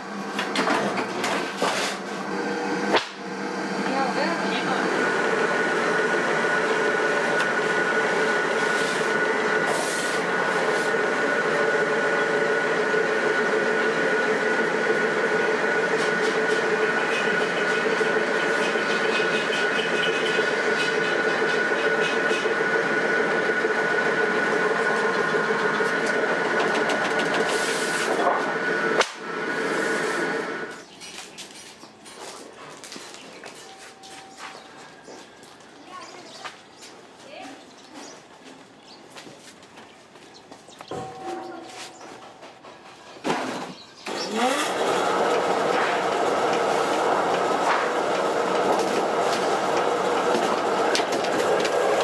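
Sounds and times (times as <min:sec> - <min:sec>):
machinery droning with steady tones: 0:00.0 - 0:30.9, 0:40.6 - 0:52.0.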